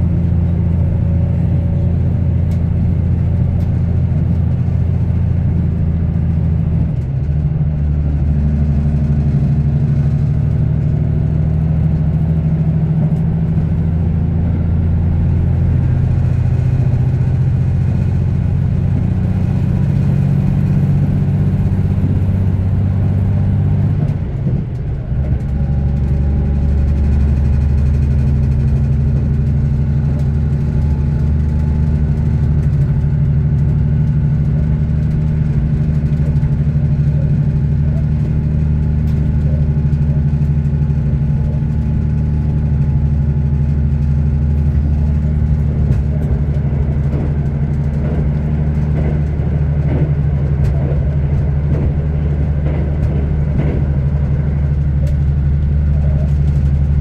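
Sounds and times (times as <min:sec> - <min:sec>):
diesel railcar engine drone: 0:00.0 - 0:57.0.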